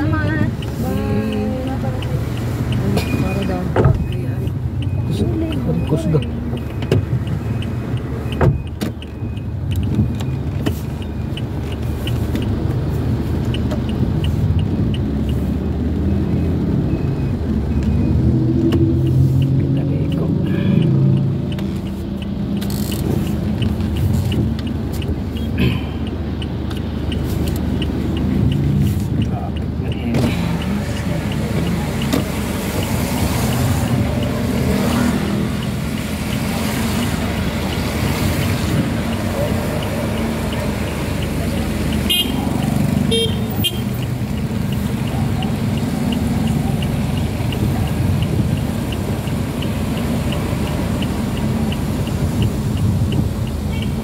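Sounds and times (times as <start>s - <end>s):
engine and road rumble: 0.0s - 54.0s
light ticking: 0.0s - 54.0s
tyres hissing on wet road: 30.1s - 53.7s.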